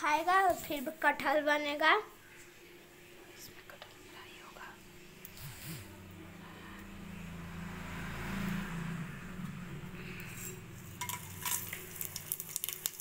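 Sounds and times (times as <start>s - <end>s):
utensils clinking against pot: 10.4s - 12.1s
spices sizzling in hot oil: 10.8s - 13.0s.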